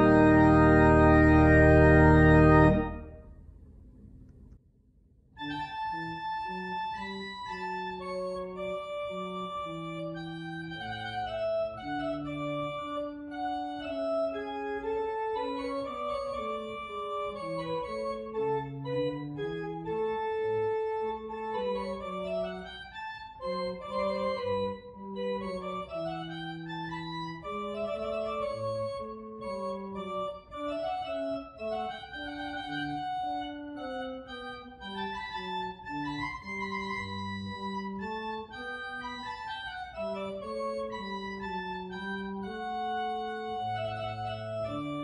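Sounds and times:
organ music: 0.0s - 3.3s, 5.4s - 45.0s.

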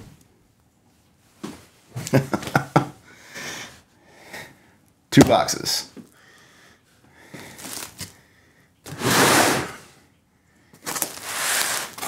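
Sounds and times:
box scraping across table: 8.9s - 10.0s, 11.0s - 12.0s.

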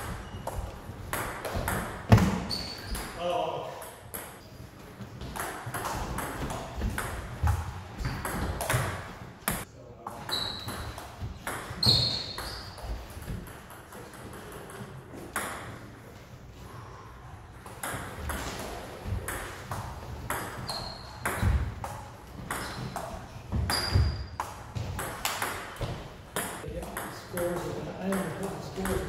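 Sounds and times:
short high squeaks: 2.5s - 3.1s, 11.8s - 12.8s, 20.6s - 21.2s.

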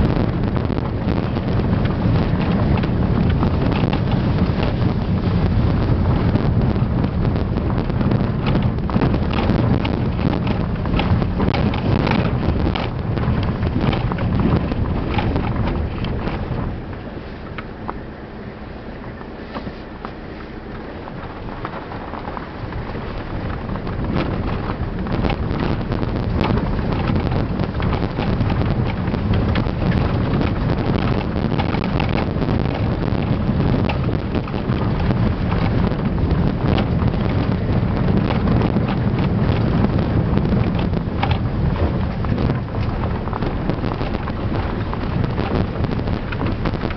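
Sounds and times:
engine and tyres rumbling: 0.0s - 46.9s
small knocks and rattles: 7.4s - 18.0s, 21.1s - 46.9s.

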